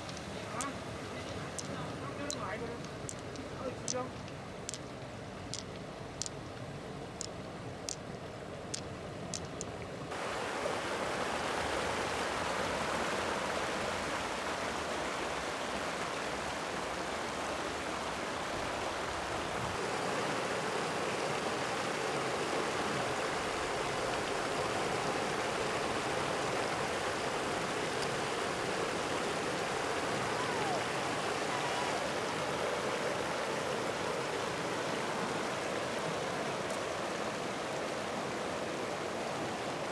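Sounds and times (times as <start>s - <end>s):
pearls clicking: 0.0s - 0.8s, 1.5s - 6.6s, 7.2s - 8.1s, 8.7s - 9.8s
water rushing over weir: 0.0s - 39.9s.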